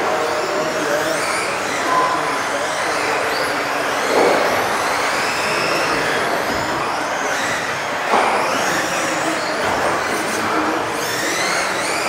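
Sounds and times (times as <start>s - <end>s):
electric rc car motors whining: 0.0s - 12.0s.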